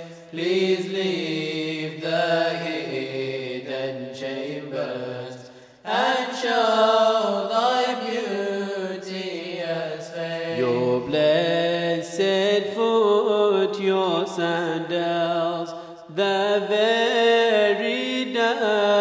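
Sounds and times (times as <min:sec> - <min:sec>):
men chanting: 0:00.0 - 0:12.5.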